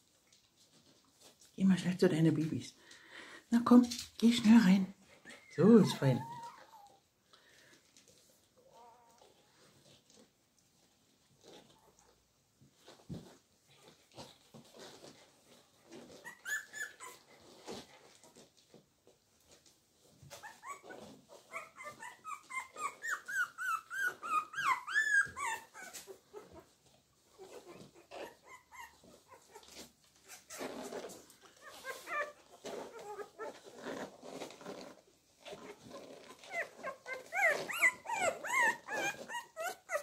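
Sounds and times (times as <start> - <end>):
puppies squeaking and whimpering: 4.5 - 7.0, 15.8 - 18.4, 20.1 - 40.0.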